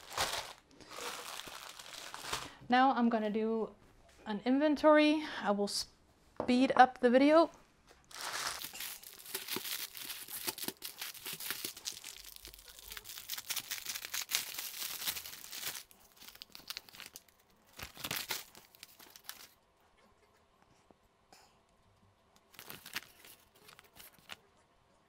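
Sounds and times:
plastic wrapping crinkling and tearing: 0:00.0 - 0:02.6, 0:08.0 - 0:19.6, 0:22.5 - 0:24.4.

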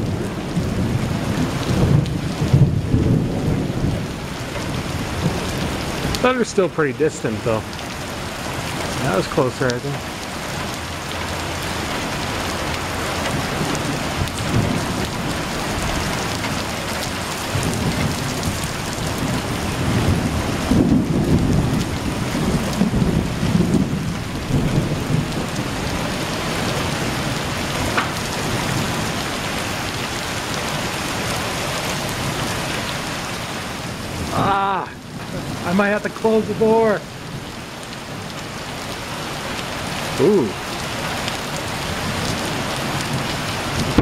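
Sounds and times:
distant thunder rumbling: 0:00.0 - 0:32.6, 0:41.5 - 0:44.0
heavy rain on gravel: 0:00.0 - 0:44.0.

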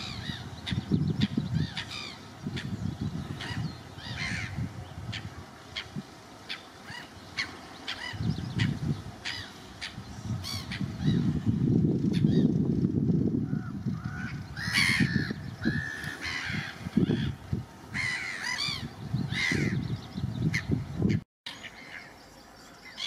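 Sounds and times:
harsh bird calls: 0:00.0 - 0:12.6, 0:13.4 - 0:23.0
low rumbling noise: 0:07.2 - 0:21.1.

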